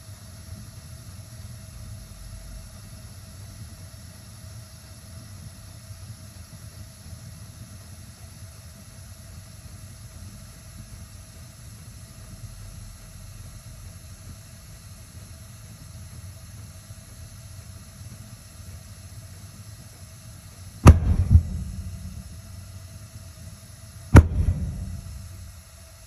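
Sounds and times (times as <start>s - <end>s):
low steady rumble: 20.8s - 22.8s, 24.1s - 25.6s
burner igniting with loud bangs: 20.8s - 26.0s.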